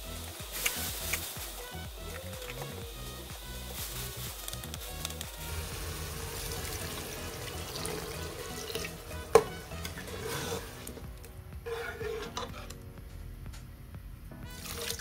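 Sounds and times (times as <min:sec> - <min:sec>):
soft background music: 0:00.0 - 0:15.0
food sizzling in a pan: 0:00.2 - 0:11.0
spoon scraping pan: 0:08.1 - 0:11.0, 0:11.7 - 0:12.8.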